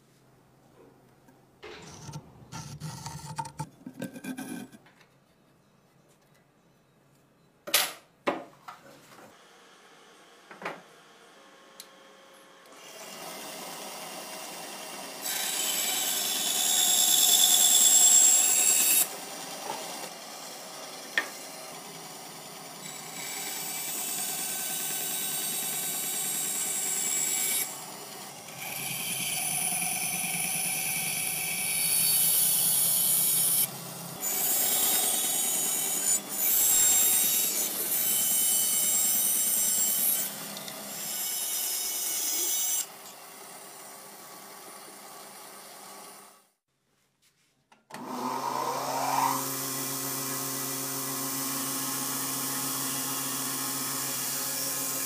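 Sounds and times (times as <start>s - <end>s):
band saw cutting wood: 1.6s - 4.8s, 12.7s - 46.1s, 48.0s - 55.0s
pencil scratching on wood: 1.9s - 4.8s.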